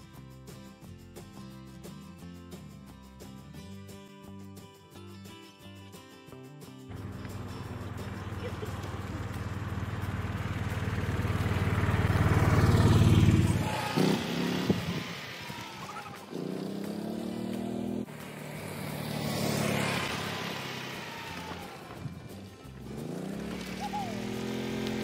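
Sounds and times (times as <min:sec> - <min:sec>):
golf cart driving past: 0:06.9 - 0:25.0.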